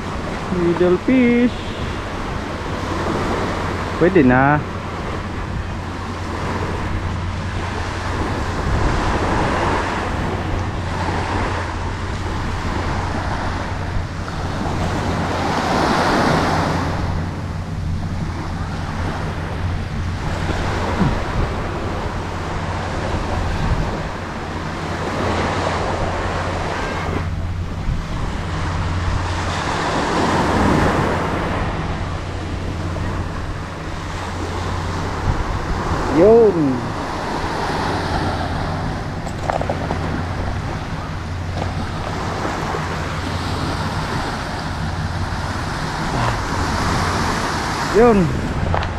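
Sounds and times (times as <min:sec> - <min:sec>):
steady low rumble: 0:00.0 - 0:48.9
surf breaking on shore: 0:00.0 - 0:48.9.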